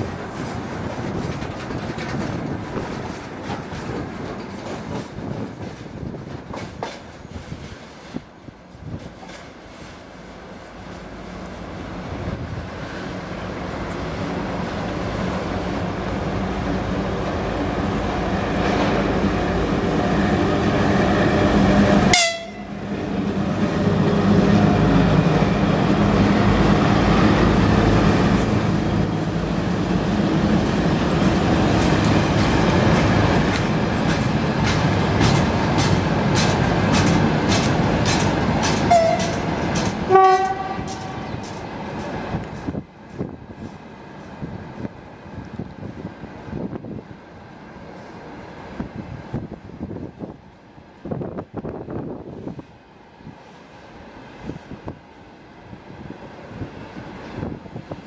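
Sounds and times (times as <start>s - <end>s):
wheels clattering over rail joints: 0.0s - 7.6s, 31.8s - 43.8s
freight train passing: 0.0s - 58.0s
train horn blast: 21.9s - 22.8s, 38.9s - 39.4s, 40.1s - 41.4s.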